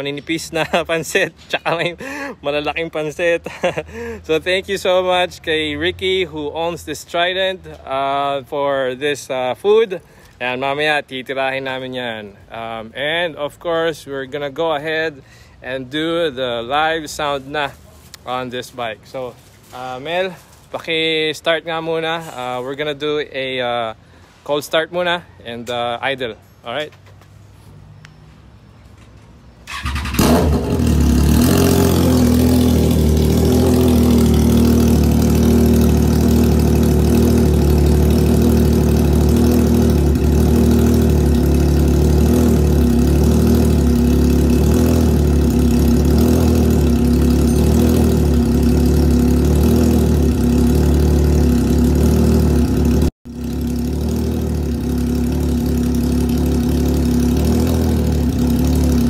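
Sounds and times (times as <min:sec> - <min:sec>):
motorcycle engine idling: 0:29.7 - 0:59.0.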